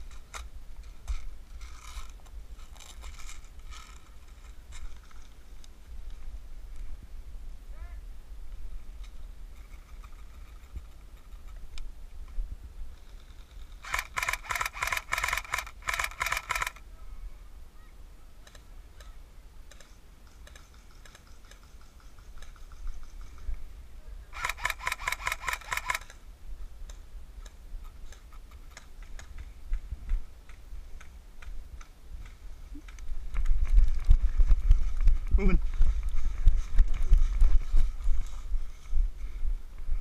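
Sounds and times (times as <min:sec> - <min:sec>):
airsoft rifle full-auto bursts: 0:13.8 - 0:16.8, 0:24.3 - 0:26.2
wind rumble on microphone: 0:29.0 - 0:40.0.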